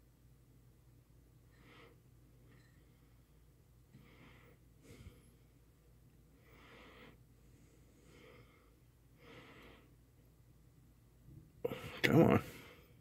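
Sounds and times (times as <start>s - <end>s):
low steady hum: 0.0s - 13.0s
person breathing faintly: 1.5s - 10.1s, 11.6s - 13.0s.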